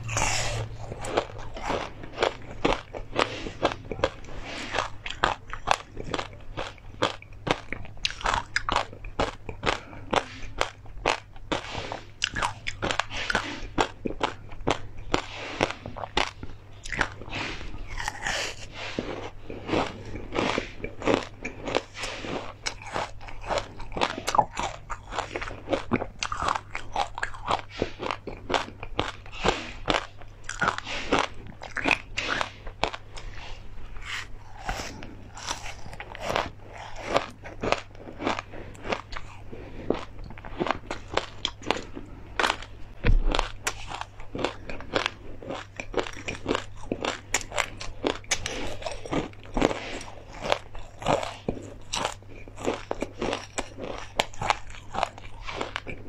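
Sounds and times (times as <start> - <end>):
crunching and chewing crispy food: 0.0 - 56.0.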